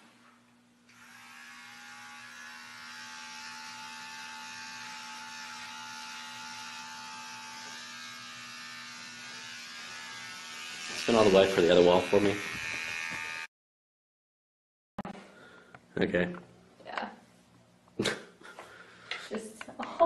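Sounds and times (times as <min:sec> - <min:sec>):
electric hair clippers buzzing: 0:00.9 - 0:13.5.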